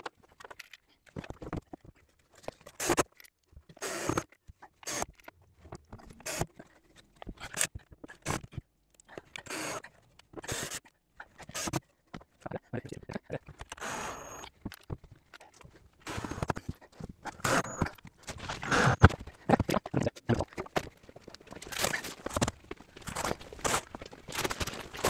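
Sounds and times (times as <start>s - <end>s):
person climbing a stepladder: 14.5s - 25.0s.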